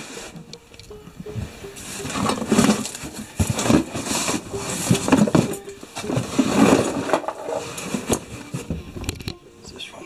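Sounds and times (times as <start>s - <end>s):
metal parts clattering in boxes: 2.0s - 8.7s.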